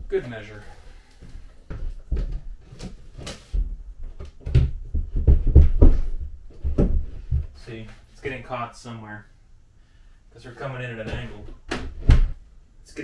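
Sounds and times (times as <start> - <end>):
wooden knocks and thuds: 1.7 - 7.6, 11.0 - 12.4.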